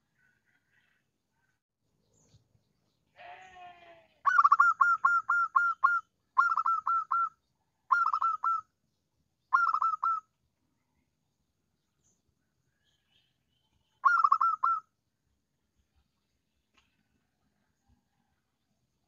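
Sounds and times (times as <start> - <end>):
dove cooing: 4.2 - 7.3, 7.9 - 8.6, 9.6 - 10.2, 14.0 - 14.8.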